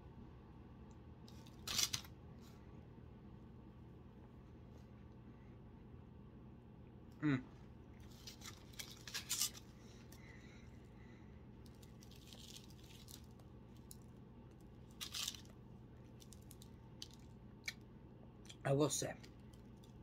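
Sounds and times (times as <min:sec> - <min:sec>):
bread bun tearing: 0:01.3 - 0:02.2, 0:08.0 - 0:10.3, 0:11.6 - 0:17.8
person humming: 0:07.2 - 0:07.6.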